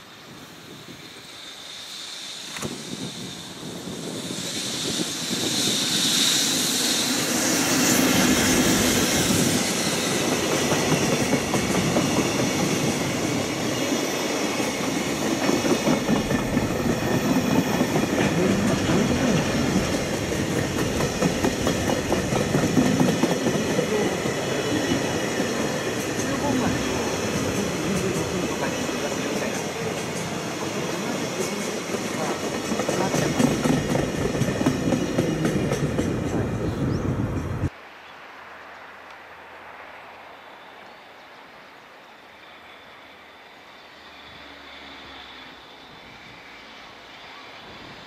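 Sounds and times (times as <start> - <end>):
electric locomotive passing: 0.0 - 48.0
train wheels clacking over rail joints: 14.6 - 30.4, 31.0 - 36.4.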